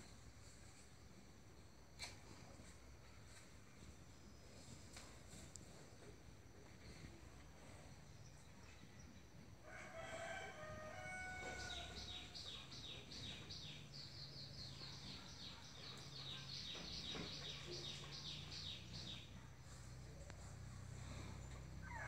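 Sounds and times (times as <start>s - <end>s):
rooster crowing: 9.6s - 12.1s.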